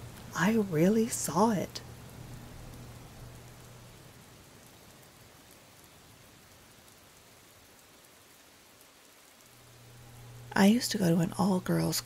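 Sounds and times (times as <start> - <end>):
low hum: 0.0 - 4.9, 9.4 - 12.0
rain on wet pavement: 0.0 - 12.0.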